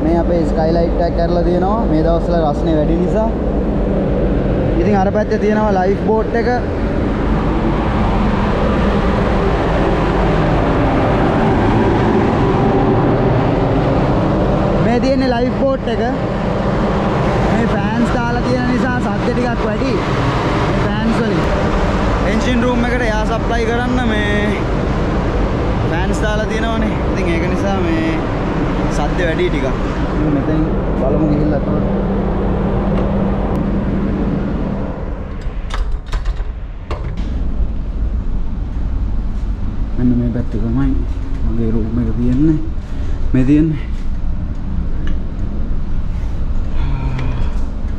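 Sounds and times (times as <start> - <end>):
low machinery hum: 0.0 - 47.9
ventilation fans running: 0.0 - 47.9.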